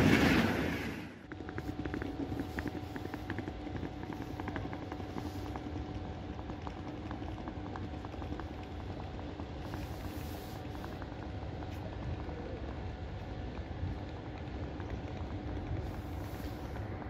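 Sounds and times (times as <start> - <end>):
distant train rumbling: 0.0 - 5.6.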